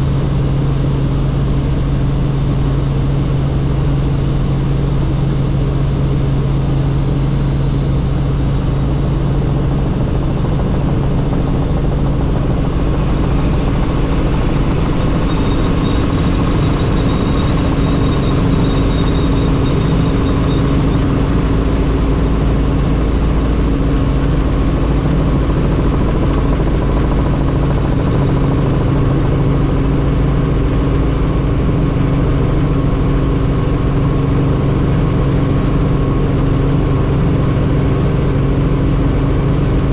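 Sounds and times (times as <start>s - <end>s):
faint high whine: 0.0s - 25.1s
helicopter engine and rotor drone: 0.0s - 39.9s.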